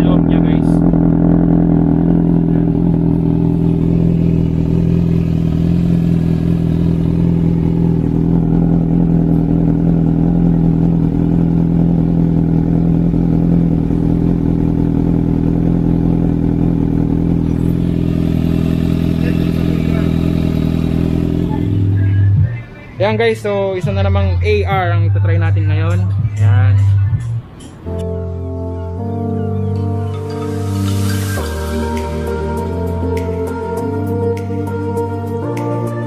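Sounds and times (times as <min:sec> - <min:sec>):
motorcycle engine idling: 0:00.0 - 0:25.9.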